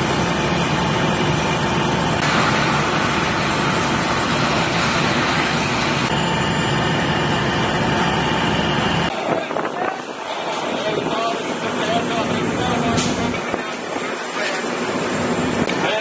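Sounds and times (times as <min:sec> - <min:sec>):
fire engine droning: 0:00.0 - 0:16.0
loud hissing rush: 0:02.2 - 0:06.1.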